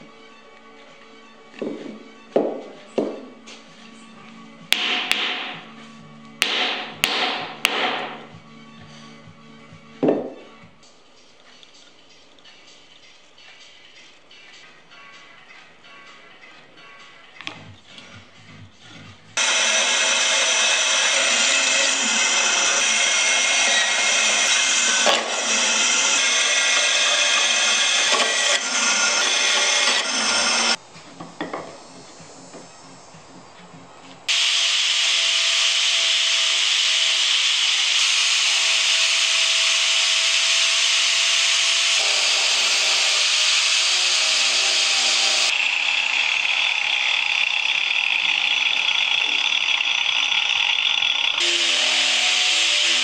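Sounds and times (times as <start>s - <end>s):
angle grinder carving wood: 19.4s - 30.8s, 34.3s - 53.0s
bandsaw cutting wood: 19.4s - 30.8s, 34.3s - 53.0s.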